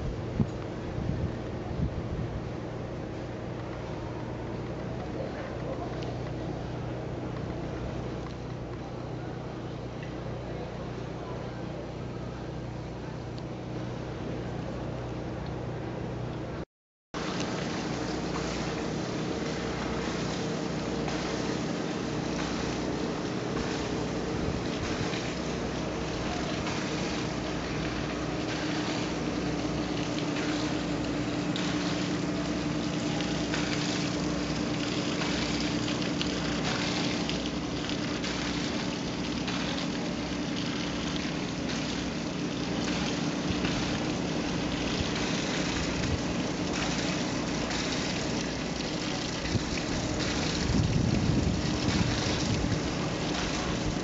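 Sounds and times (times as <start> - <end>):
wind buffeting microphone: 0.0 - 2.6, 23.4 - 26.7, 49.4 - 54.0
low mechanical hum: 0.0 - 16.6, 17.2 - 54.0
wind and water rushing: 17.2 - 54.0.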